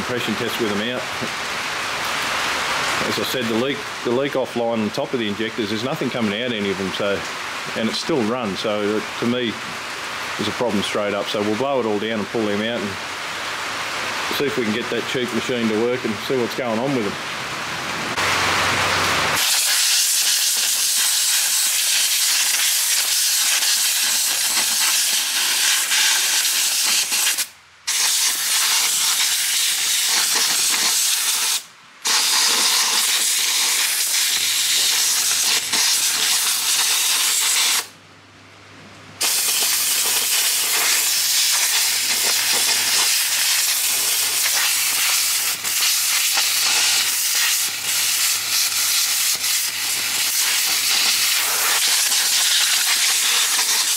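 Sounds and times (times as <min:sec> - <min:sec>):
compressed air blow gun hissing: 0:19.3 - 0:37.9, 0:39.2 - 0:53.9.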